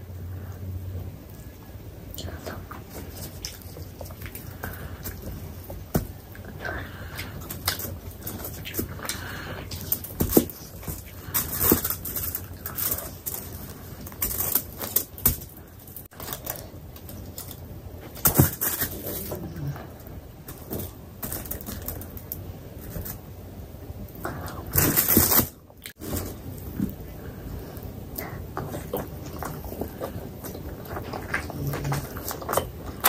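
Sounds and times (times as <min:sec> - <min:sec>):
person chewing: 0:02.2 - 0:17.6, 0:24.3 - 0:33.0.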